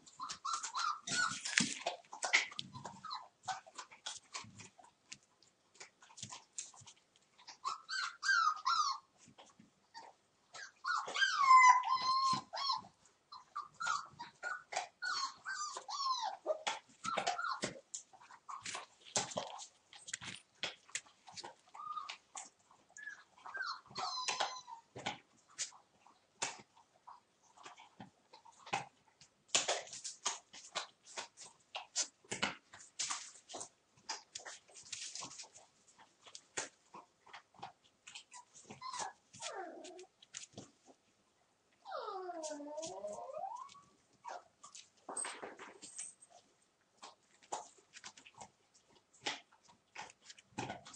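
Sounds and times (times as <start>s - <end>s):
puppies scuffling: 0.0s - 9.8s, 13.6s - 25.8s, 29.5s - 41.0s, 42.1s - 50.9s
puppy whining yelps: 0.1s - 3.8s, 7.4s - 9.2s, 9.9s - 18.8s, 21.7s - 22.3s, 22.9s - 25.2s, 38.3s - 40.1s, 41.8s - 44.5s.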